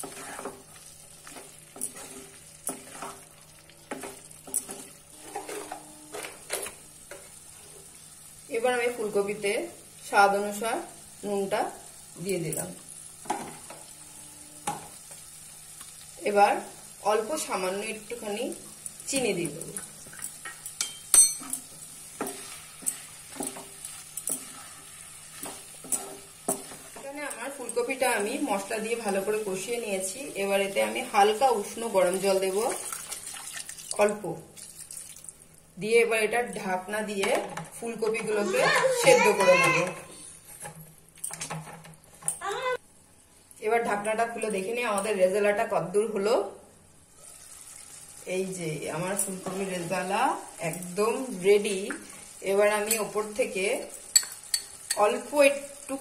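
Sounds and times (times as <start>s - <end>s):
wooden spatula scraping pan: 0.0s - 7.3s, 22.2s - 27.2s
light sizzle: 0.0s - 56.0s.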